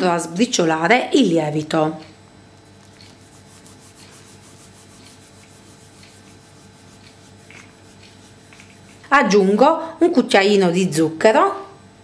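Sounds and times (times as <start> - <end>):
fingertips rubbing yeast into flour: 2.6 - 9.4.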